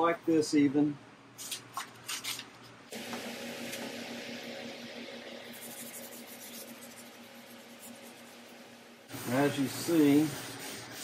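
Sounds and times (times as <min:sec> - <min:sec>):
machine pulsing hum: 0:02.9 - 0:11.0
abrasive pad rubbing sheet metal: 0:05.4 - 0:11.0.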